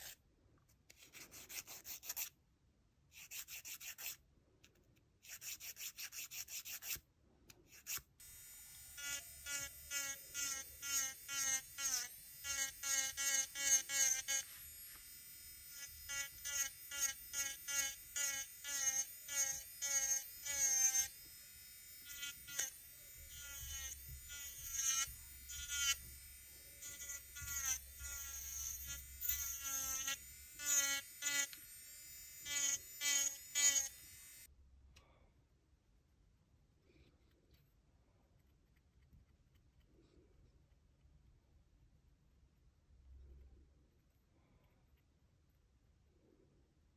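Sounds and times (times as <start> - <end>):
nail file rasping: 0.9 - 2.4, 3.1 - 34.5
electric nail drill whining: 8.2 - 34.5.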